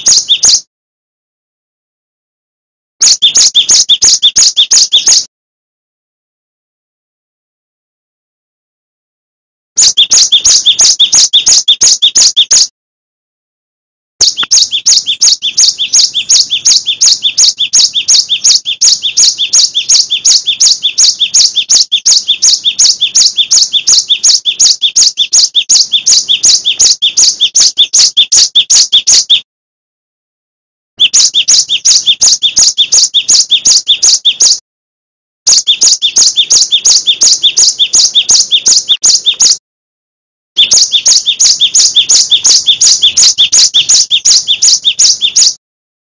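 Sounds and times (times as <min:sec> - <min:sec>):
bird singing high repeated notes: 0:00.0 - 0:00.7, 0:03.0 - 0:05.3, 0:09.8 - 0:12.7, 0:14.2 - 0:29.4, 0:31.0 - 0:34.6, 0:35.5 - 0:39.6, 0:40.6 - 0:45.6.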